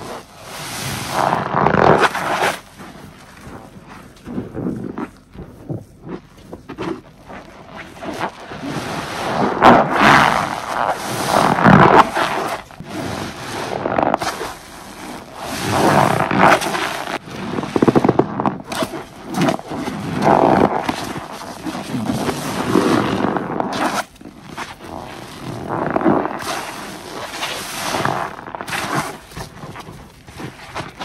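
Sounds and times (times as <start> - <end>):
soapy sponge squelching: 0.0 - 31.0.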